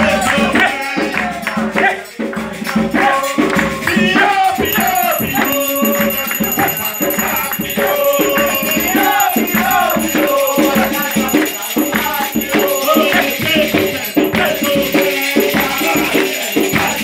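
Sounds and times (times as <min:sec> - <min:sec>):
group singing a ritual song: 0:00.0 - 0:17.0
shaken rattles: 0:04.6 - 0:14.3.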